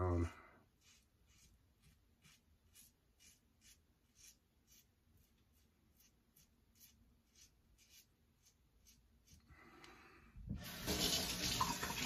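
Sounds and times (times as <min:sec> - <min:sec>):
razor scraping stubble: 0:00.7 - 0:09.5.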